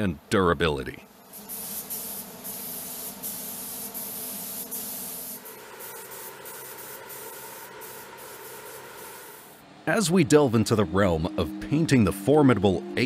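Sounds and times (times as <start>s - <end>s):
paint spray gun hissing: 1.2s - 9.6s.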